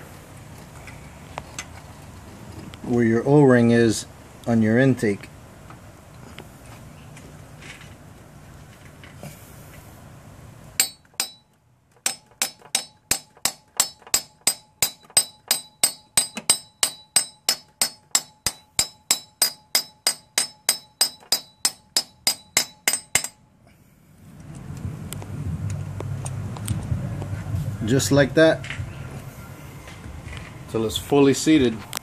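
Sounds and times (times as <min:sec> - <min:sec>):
hammer ringing on metal: 0:10.8 - 0:23.4.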